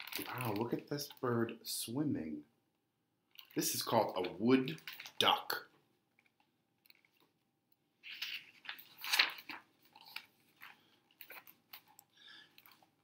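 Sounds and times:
paper page rustling: 0:00.0 - 0:00.8, 0:08.0 - 0:12.0.

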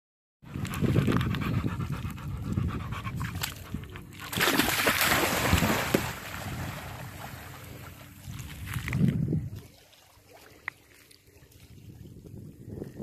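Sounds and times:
dog panting: 0:00.6 - 0:04.2
water churning: 0:03.2 - 0:08.4
dog splashing into water: 0:04.2 - 0:08.0.

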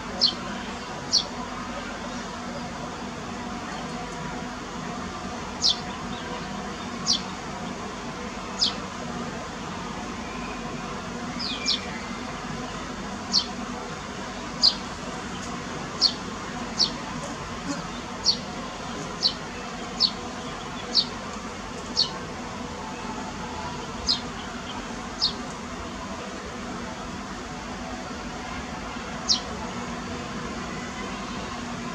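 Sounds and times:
small bird chirping: 0:05.6 - 0:05.9, 0:06.9 - 0:07.3, 0:08.6 - 0:08.8, 0:11.4 - 0:12.0, 0:13.3 - 0:13.6, 0:14.6 - 0:14.8, 0:16.0 - 0:16.2, 0:16.8 - 0:17.0, 0:17.7 - 0:18.5, 0:19.2 - 0:21.2, 0:21.9 - 0:22.2, 0:24.0 - 0:25.4, 0:29.3 - 0:29.5.

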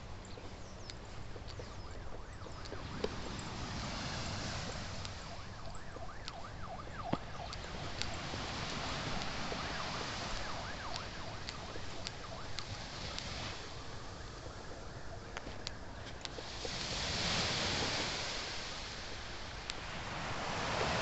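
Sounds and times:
waves lapping on sand: 0:00.0 - 0:21.0
wind: 0:00.0 - 0:21.0
birds whistling: 0:00.2 - 0:08.3
sharp high ticks: 0:00.2 - 0:13.7, 0:14.4 - 0:17.1, 0:19.5 - 0:19.9.

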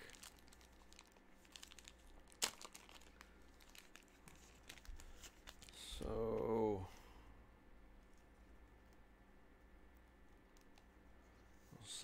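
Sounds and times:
packaging crinkling: 0:00.0 - 0:05.9.

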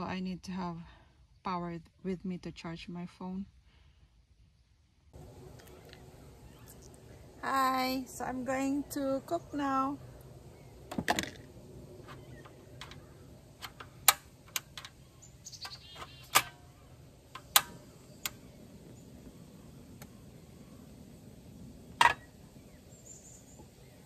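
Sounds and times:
camp stove and cookware clinking: 0:12.0 - 0:18.4, 0:21.9 - 0:22.4.

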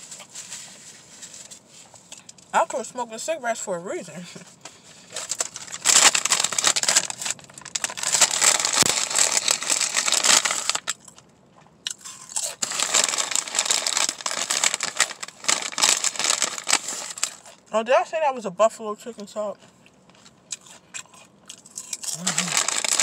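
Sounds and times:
foil chip bag crinkling: 0:04.7 - 0:11.3, 0:11.9 - 0:17.7, 0:20.1 - 0:23.0
chips crunching when chewed: 0:05.1 - 0:17.6, 0:19.6 - 0:23.0.

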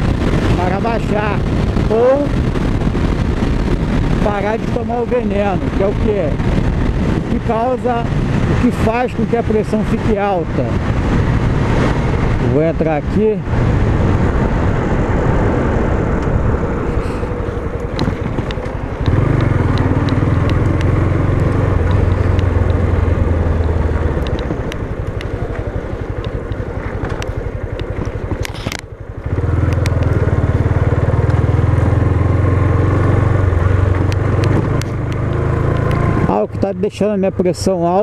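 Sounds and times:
motorcycle engine running: 0:00.0 - 0:38.0
small clicks: 0:17.8 - 0:22.8, 0:24.2 - 0:28.9, 0:29.6 - 0:30.2, 0:33.9 - 0:36.0.

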